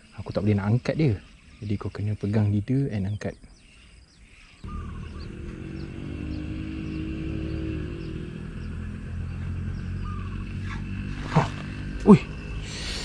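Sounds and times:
faint bird chirps: 0:00.0 - 0:13.0
vehicle engine running: 0:04.6 - 0:13.0.

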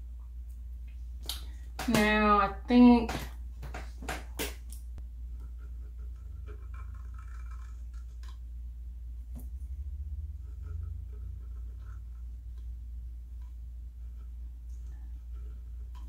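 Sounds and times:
paint pen scratching on wood: 0:05.3 - 0:08.4, 0:10.2 - 0:12.7, 0:13.4 - 0:16.0.

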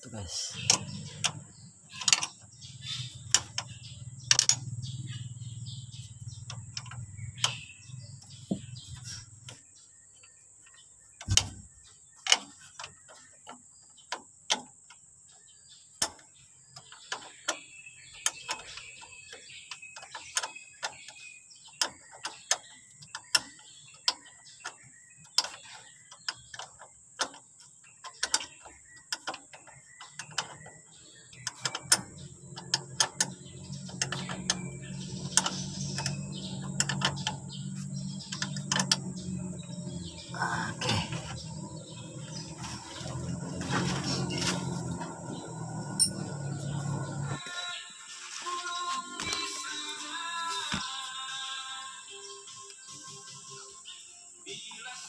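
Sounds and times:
low hum: 0:32.3 - 0:47.4.

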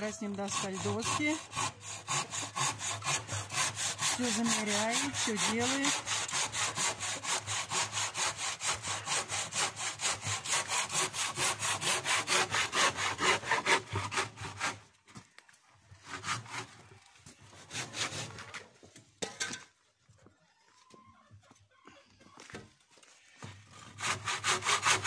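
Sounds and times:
hand saw cutting wood: 0:00.0 - 0:14.9, 0:15.9 - 0:18.7, 0:23.4 - 0:25.0.

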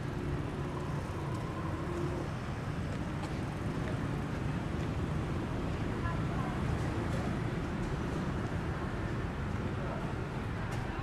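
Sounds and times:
passing traffic rumble: 0:00.0 - 0:11.0.

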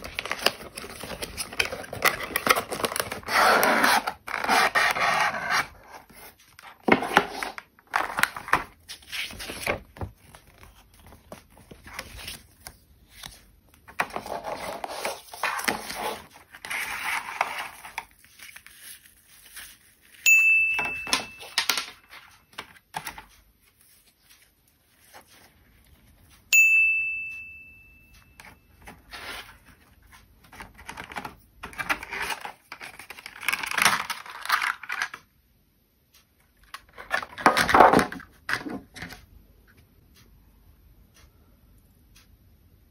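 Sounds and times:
packaging rustling and crinkling: 0:00.0 - 0:20.2, 0:30.5 - 0:35.2
bright ding: 0:20.2 - 0:22.0, 0:26.5 - 0:28.7.

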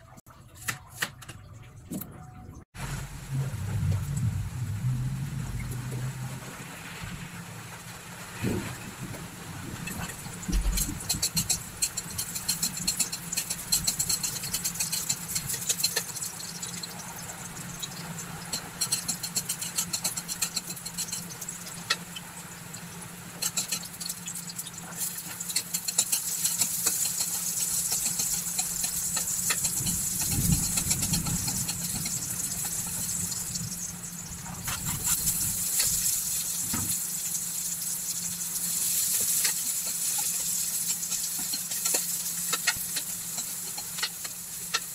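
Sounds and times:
low hum: 0:01.5 - 0:11.8
food sizzling in hot oil: 0:04.0 - 0:44.9
metal spatula scraping wok: 0:09.7 - 0:16.8, 0:17.9 - 0:22.0, 0:23.4 - 0:33.9, 0:34.5 - 0:37.8, 0:38.6 - 0:44.9.

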